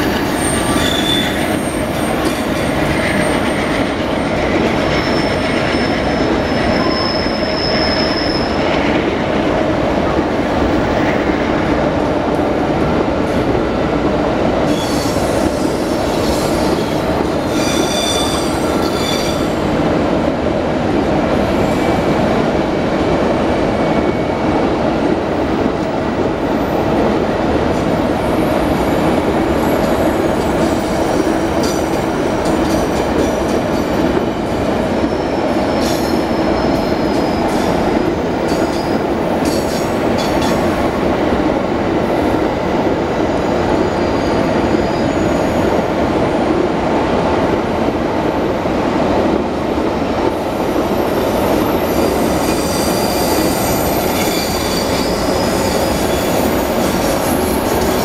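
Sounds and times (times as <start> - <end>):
steel wheels rumbling on rail: 0.0 - 58.0
high-pitched wheel squeals: 0.2 - 2.4, 4.9 - 8.6, 16.2 - 19.6, 52.1 - 58.0.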